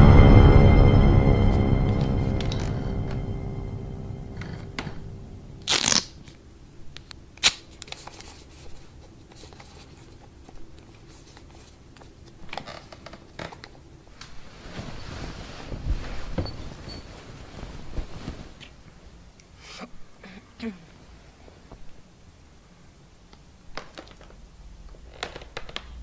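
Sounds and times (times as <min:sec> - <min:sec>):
scary music: 0:00.0 - 0:06.0
bedclothes rustling: 0:08.2 - 0:20.0.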